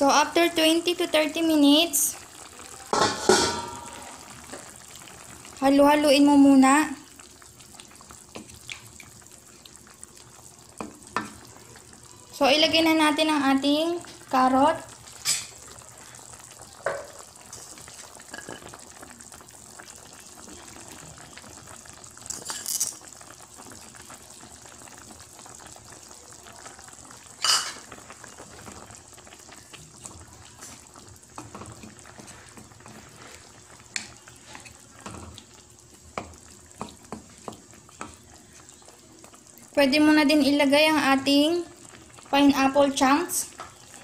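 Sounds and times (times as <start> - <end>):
broth bubbling in metal pan: 0.0 - 44.0
carrot pieces clattering into pan: 2.9 - 4.0.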